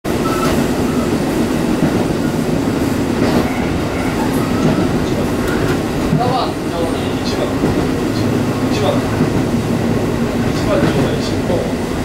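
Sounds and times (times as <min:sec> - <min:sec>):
railcar engine and wheels rumble: 0:00.0 - 0:12.0.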